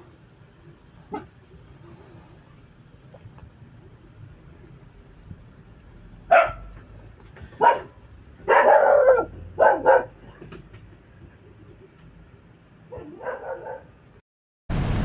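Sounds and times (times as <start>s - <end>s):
dog barking: 1.1s - 1.4s, 6.3s - 6.8s, 7.6s - 10.4s, 12.9s - 14.0s.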